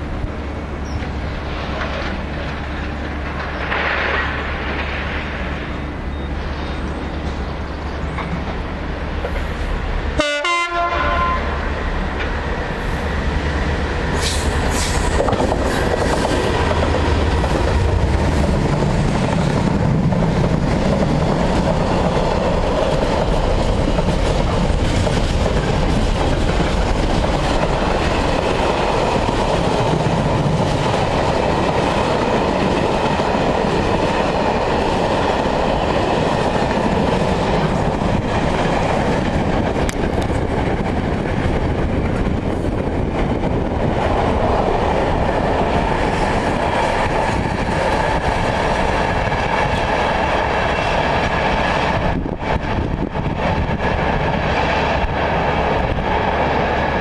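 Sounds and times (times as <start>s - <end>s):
diesel locomotive engine accelerating: 0.0s - 57.0s
two-tone train horn: 10.1s - 11.7s.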